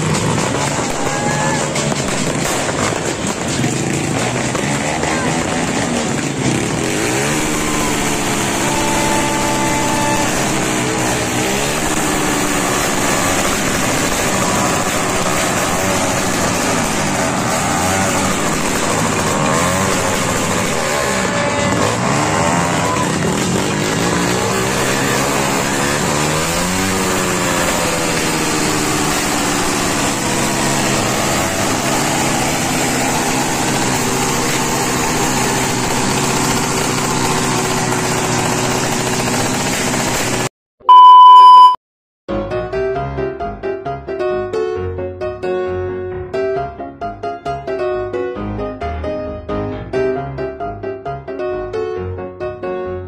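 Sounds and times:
motorcycle engines revving: 0:00.0 - 0:40.5.

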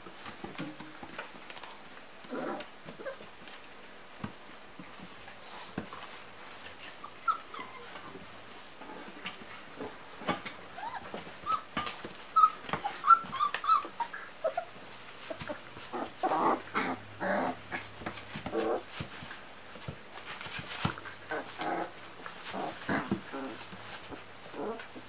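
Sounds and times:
dogs playing roughly: 0:00.2 - 0:25.0
puppies whimpering and squeaking: 0:03.0 - 0:03.3, 0:06.9 - 0:08.3, 0:10.4 - 0:17.0.

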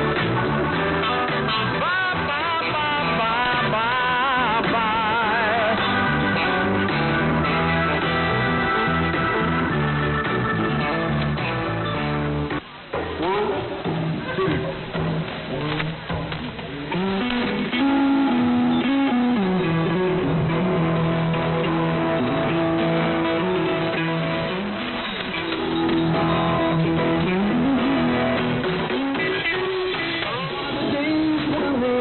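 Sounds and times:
guitar music over radio: 0:00.0 - 0:32.0.

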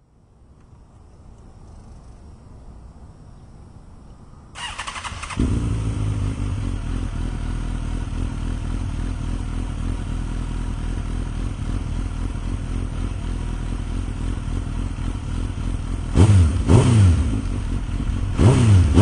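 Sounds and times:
motorcycle engine idling: 0:04.6 - 0:19.0.

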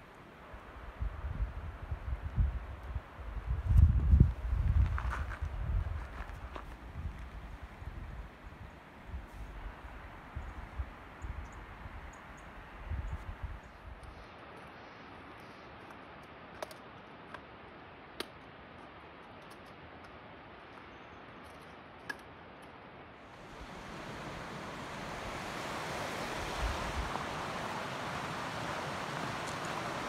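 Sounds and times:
waterfall rushing: 0:23.3 - 0:30.0.

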